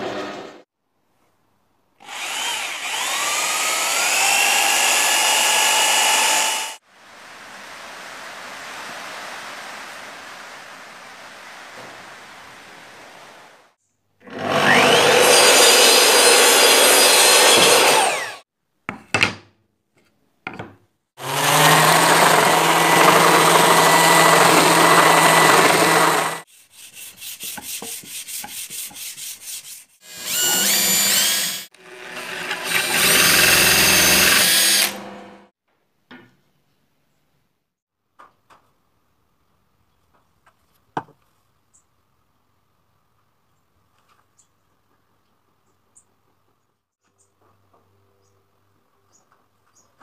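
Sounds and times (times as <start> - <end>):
power tool running: 2.0 - 6.8, 14.3 - 18.4, 21.2 - 26.4, 30.0 - 35.5
sander working a board: 2.0 - 6.8, 14.3 - 18.4, 21.2 - 35.2.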